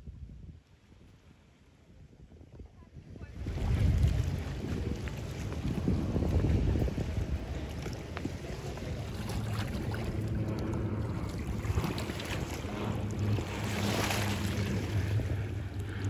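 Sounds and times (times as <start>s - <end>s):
wind on microphone: 0.0s - 16.0s
boat engine humming: 3.4s - 16.0s.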